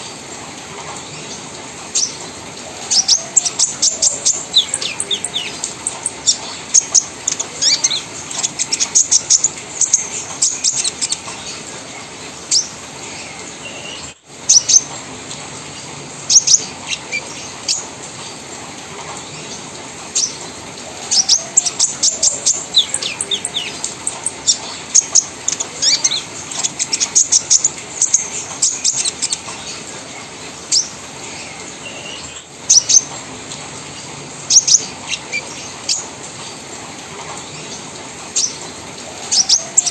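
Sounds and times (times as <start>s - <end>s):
bird chirping rapidly: 2.9s - 11.2s, 21.1s - 29.4s.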